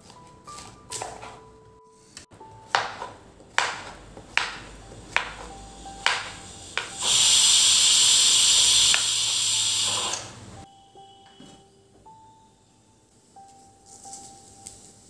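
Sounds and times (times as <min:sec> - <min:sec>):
pressure cooker steam hiss: 0:05.6 - 0:10.6.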